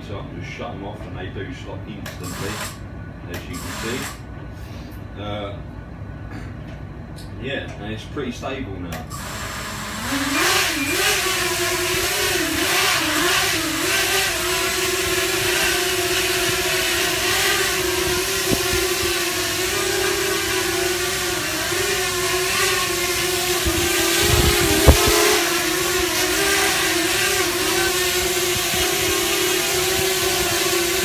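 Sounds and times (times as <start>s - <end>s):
quadcopter motors buzzing: 2.2s - 2.8s, 3.4s - 4.2s, 9.1s - 31.0s.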